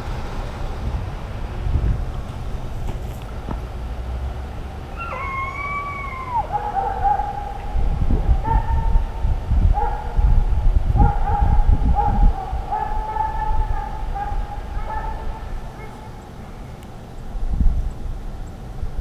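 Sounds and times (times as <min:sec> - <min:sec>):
low rumbling noise: 0:00.0 - 0:19.0
hounds baying: 0:04.9 - 0:10.3, 0:11.0 - 0:16.3.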